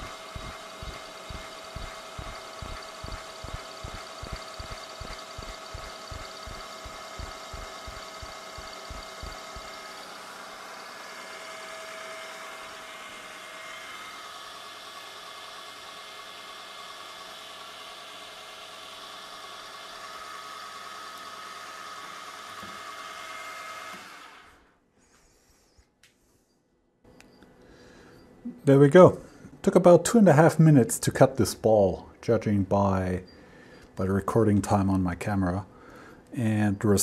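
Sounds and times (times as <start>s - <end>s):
milling machine spindle whine: 0.0s - 24.6s.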